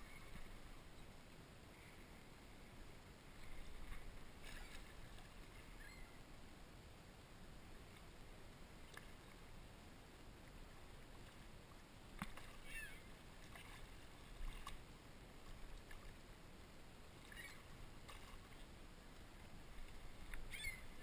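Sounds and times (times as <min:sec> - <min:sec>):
small water splashes: 0:03.3 - 0:06.1, 0:11.0 - 0:16.3, 0:17.0 - 0:21.0.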